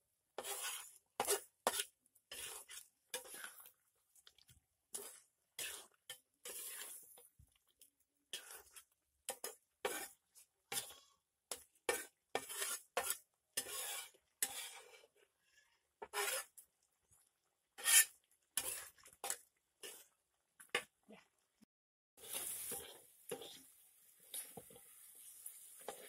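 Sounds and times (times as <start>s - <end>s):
metal spatula scraping a wok: 0.4s - 3.8s, 4.9s - 7.3s, 8.3s - 15.4s, 16.0s - 16.6s, 17.7s - 20.1s, 22.2s - 26.0s.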